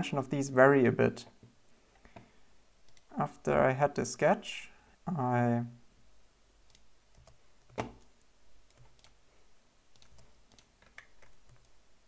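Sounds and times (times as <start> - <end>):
computer mouse clicks: 2.0 - 3.1, 6.7 - 9.2, 9.9 - 11.8.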